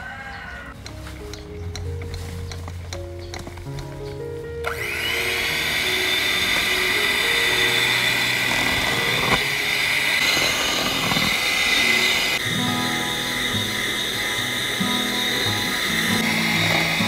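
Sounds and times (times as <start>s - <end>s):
electric mixer motor whine: 4.6s - 17.0s.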